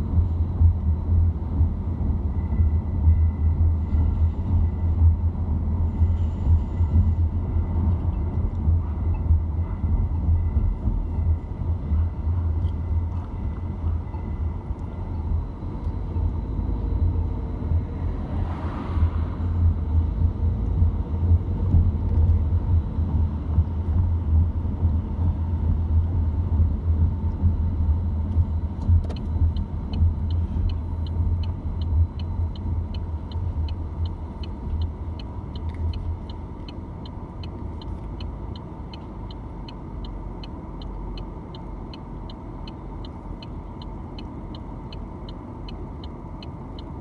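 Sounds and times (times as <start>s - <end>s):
car engine and road rumble: 0.0s - 47.0s
high light ticking: 29.0s - 47.0s.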